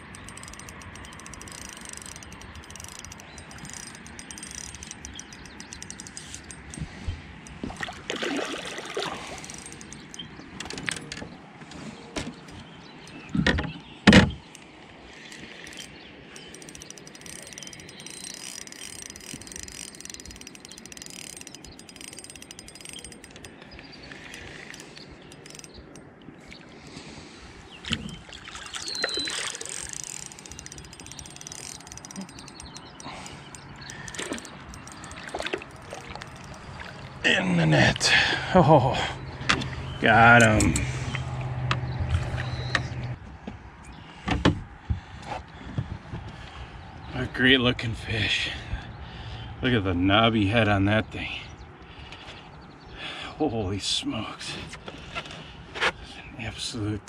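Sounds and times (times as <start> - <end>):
fishing reel cranking and ratcheting: 0.0 - 7.6, 9.2 - 11.2, 15.3 - 26.1, 28.1 - 36.8
water splashing: 7.6 - 9.5, 27.9 - 30.0, 34.0 - 37.3.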